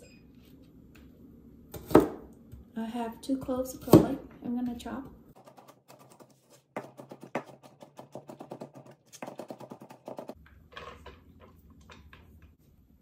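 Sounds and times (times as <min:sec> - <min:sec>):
knife chopping on cutting mat: 0:05.4 - 0:10.4.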